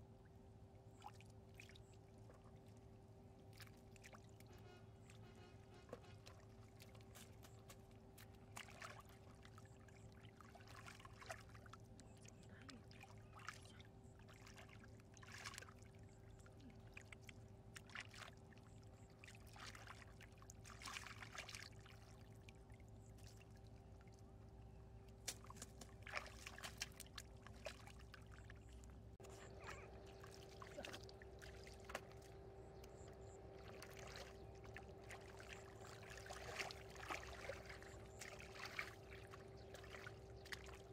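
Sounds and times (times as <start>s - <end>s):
muddy water sloshing and splashing: 0.8s - 40.9s.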